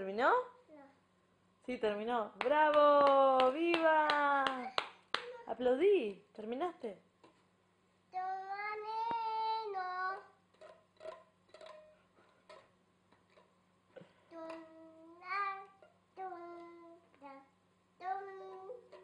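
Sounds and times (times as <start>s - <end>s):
faint steady hum: 0.0s - 19.0s
toddler singing: 8.1s - 10.4s, 14.3s - 19.0s.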